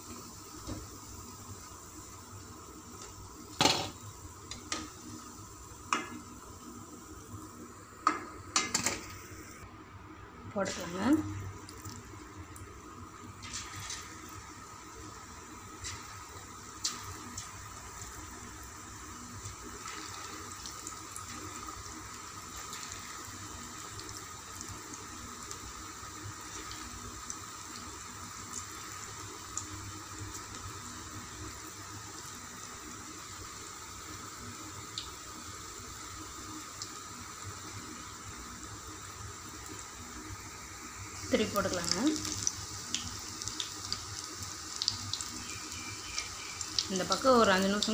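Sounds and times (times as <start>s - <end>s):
hot oil sizzling: 0.0s - 47.9s.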